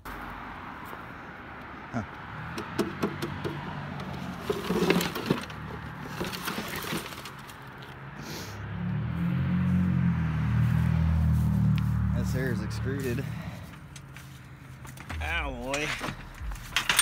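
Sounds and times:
plastic and metal scrap clattering: 0:02.6 - 0:07.8, 0:14.8 - 0:17.0.

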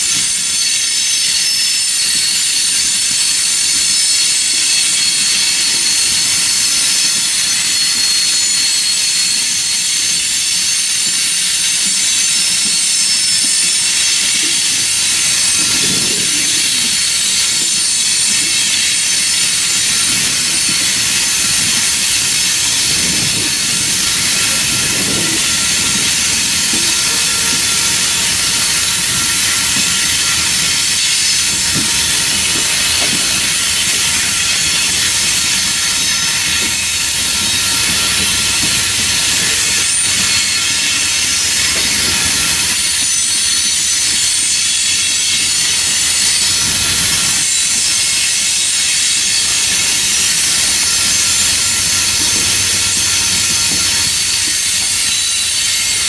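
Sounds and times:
train cars clanking: 0:00.0 - 0:56.0
wheels hissing on rails: 0:00.0 - 0:56.0.

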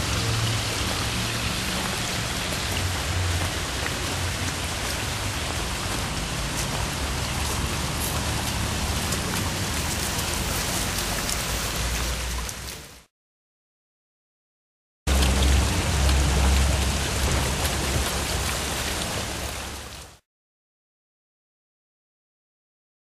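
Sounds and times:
waterfall splashing: 0:00.0 - 0:13.1, 0:15.1 - 0:20.2.

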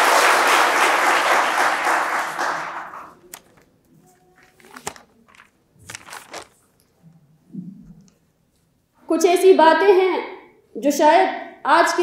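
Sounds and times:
audience applause: 0:00.0 - 0:03.2.

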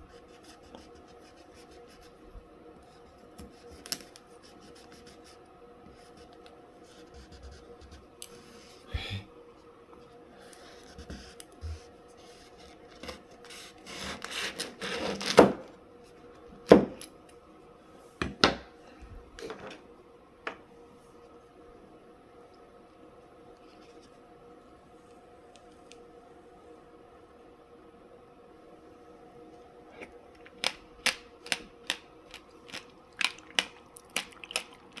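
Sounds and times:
knife sawing through fruit rind: 0:13.0 - 0:15.3
seeds crunching while chewing: 0:30.0 - 0:35.0.

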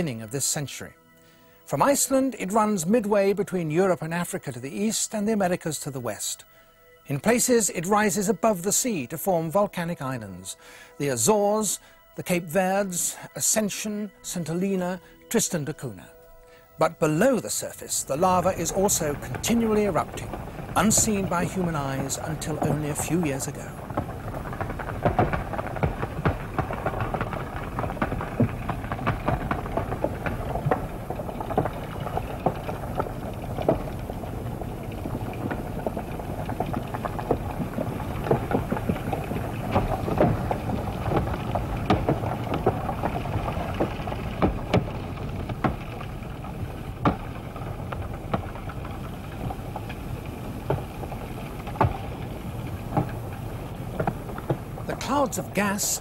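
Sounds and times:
lava crackles and pops: 0:00.0 - 0:56.0
underwater low rumble: 0:18.2 - 0:55.0.

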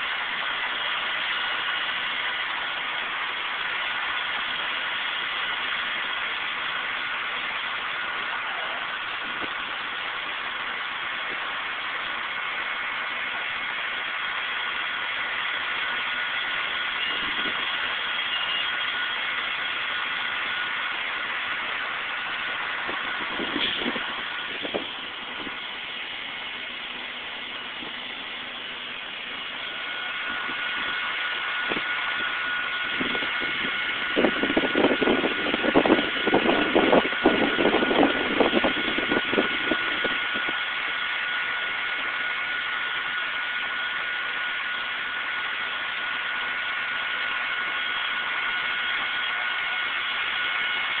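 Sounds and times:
fire truck engines idling: 0:00.0 - 0:51.0
high whine: 0:00.0 - 0:51.0
irregular rumbling bursts: 0:18.8 - 0:43.9.

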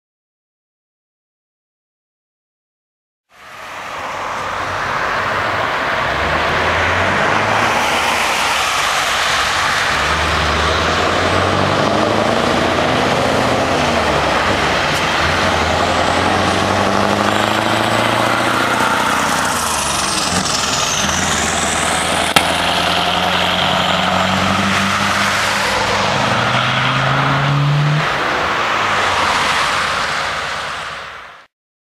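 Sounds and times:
road and tyre noise: 0:03.3 - 0:31.5
diesel truck engine accelerating: 0:04.8 - 0:29.0.

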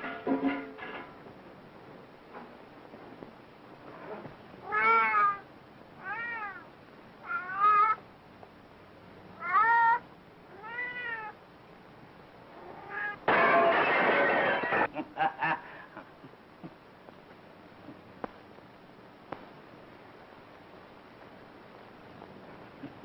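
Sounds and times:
cat meowing: 0:04.6 - 0:08.0, 0:09.4 - 0:11.4, 0:12.6 - 0:13.2.

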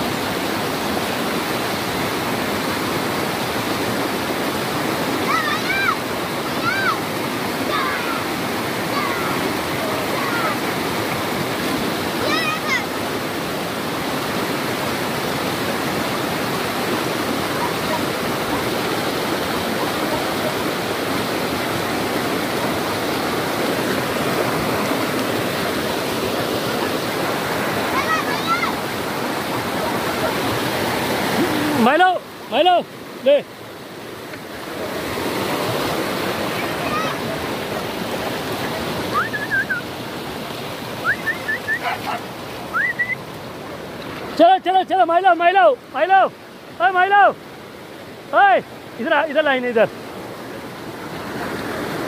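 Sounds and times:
stream rushing over boulders: 0:00.0 - 0:52.0
short high-pitched rising calls: 0:39.1 - 0:39.9, 0:41.0 - 0:41.9, 0:42.7 - 0:43.2.

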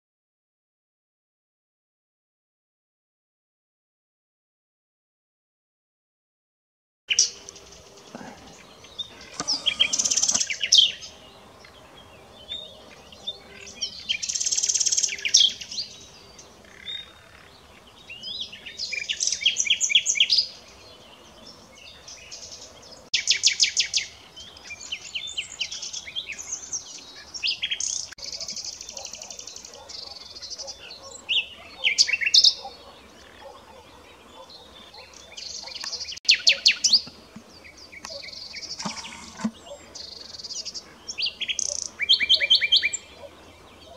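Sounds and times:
nightingale singing: 0:08.1 - 0:16.0, 0:34.4 - 0:43.9.

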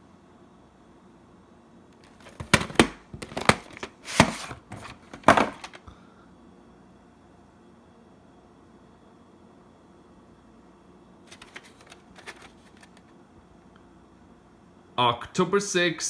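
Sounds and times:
plastic cassette clicks and scrapes: 0:11.3 - 0:13.1.

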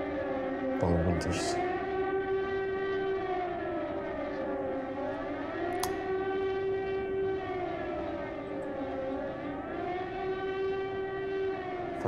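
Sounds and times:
air-raid siren wailing: 0:00.0 - 0:12.0
sharp click: 0:05.8 - 0:06.0.

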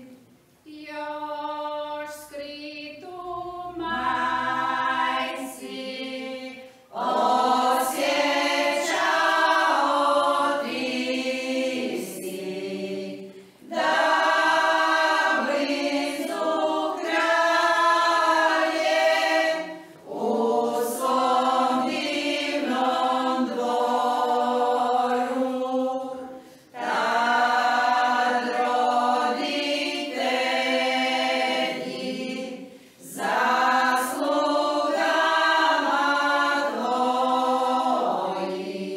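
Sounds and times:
women's choir singing a hymn: 0:00.0 - 0:38.9.

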